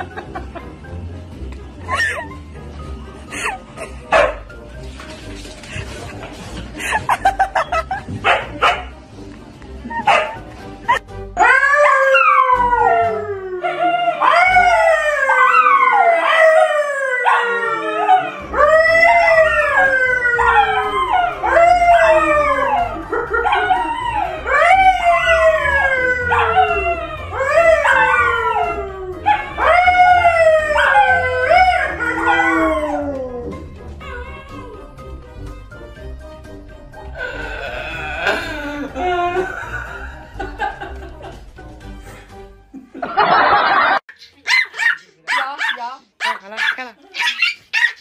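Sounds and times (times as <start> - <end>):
dogs howling: 11.4 - 35.1
man howling: 37.2 - 39.7.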